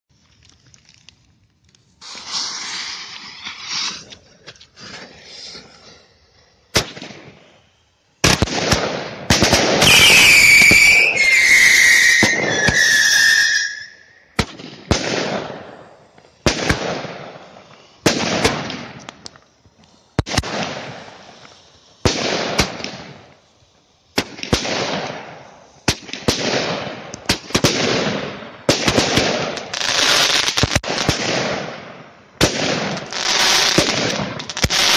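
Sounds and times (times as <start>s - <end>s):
hissing spray of sparks: 1.8s - 6.6s
firework bangs: 2.0s - 4.1s, 6.7s - 34.9s
firework whistles falling in pitch: 9.7s - 14.4s.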